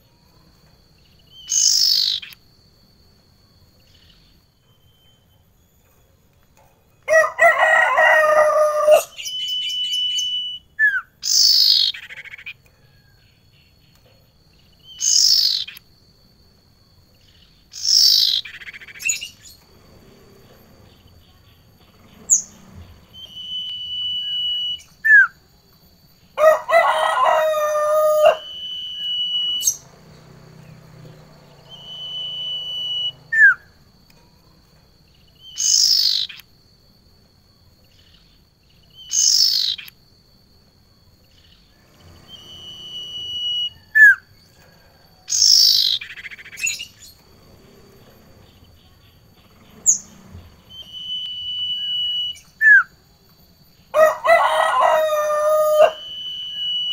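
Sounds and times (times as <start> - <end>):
birds calling harshly: 1.2 - 2.4, 7.1 - 12.7, 14.6 - 15.9, 17.4 - 20.3, 26.4 - 33.8, 35.2 - 36.4, 39.0 - 40.0, 45.3 - 48.6, 54.0 - 56.9
bird whistle: 1.3 - 2.4, 8.0 - 12.6, 14.8 - 15.8, 17.7 - 19.6, 22.3 - 25.4, 27.2 - 29.9, 31.6 - 33.8, 35.4 - 36.4, 38.9 - 39.9, 42.0 - 44.3, 45.3 - 47.2, 50.6 - 53.0, 54.8 - 56.9.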